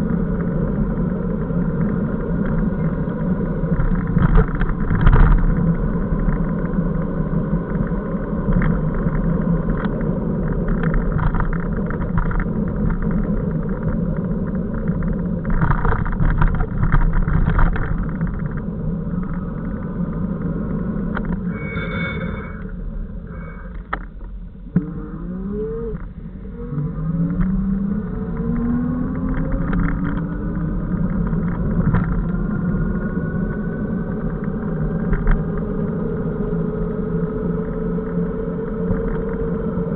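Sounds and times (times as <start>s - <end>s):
wind and road rumble: 0.0s - 39.9s
brief high squeal: 21.4s - 23.8s.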